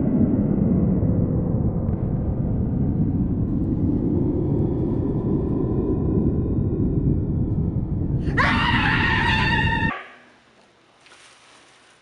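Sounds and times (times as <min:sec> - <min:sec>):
deep rumble: 0:00.0 - 0:09.9
high scream: 0:08.2 - 0:10.3.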